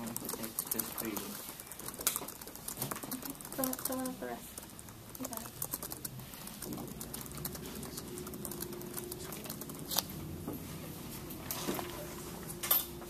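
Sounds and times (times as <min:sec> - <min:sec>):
paper crinkling: 0:00.0 - 0:10.1
sharp clicks: 0:00.0 - 0:10.1
pencils writing on paper: 0:00.0 - 0:10.2.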